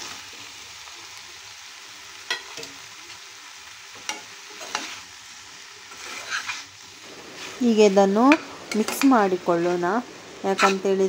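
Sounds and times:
food sizzling in a pot: 0:00.0 - 0:11.0
spatula scraping a steel pot: 0:04.6 - 0:05.1, 0:05.9 - 0:09.9, 0:10.5 - 0:11.0.

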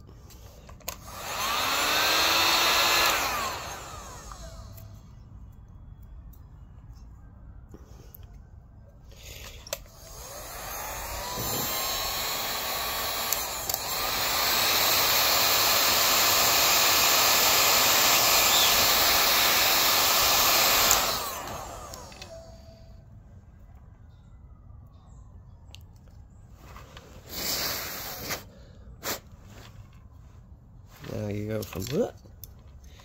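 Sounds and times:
heat gun fan blowing: 0:00.0 - 0:05.2, 0:09.4 - 0:22.8, 0:27.1 - 0:29.4.

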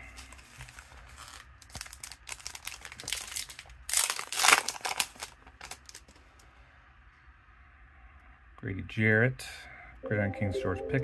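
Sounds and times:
foil wrappers crinkling: 0:00.0 - 0:06.2.

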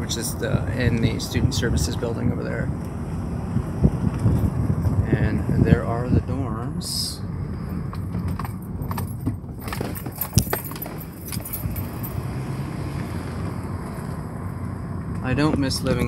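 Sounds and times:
car interior rumble: 0:00.0 - 0:16.0
light clicks and rattles: 0:07.8 - 0:12.1.

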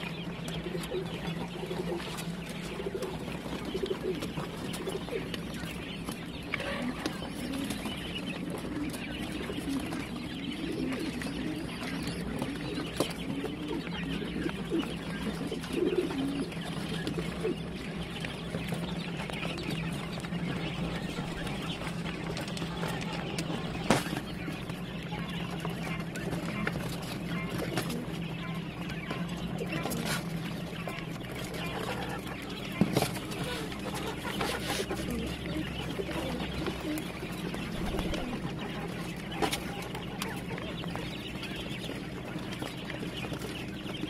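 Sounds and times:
quail chicks chirping: 0:00.0 - 0:44.0.

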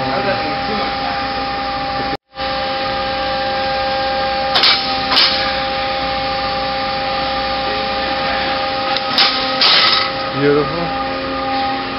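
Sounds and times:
lathe mechanical hum: 0:00.0 - 0:11.9
sharp mechanical clunks: 0:04.5 - 0:05.5, 0:09.0 - 0:10.1.

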